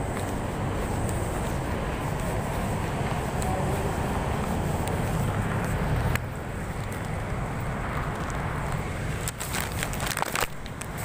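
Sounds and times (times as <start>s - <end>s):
street traffic: 0.0s - 11.0s
wind rumbling on microphone: 0.0s - 11.0s.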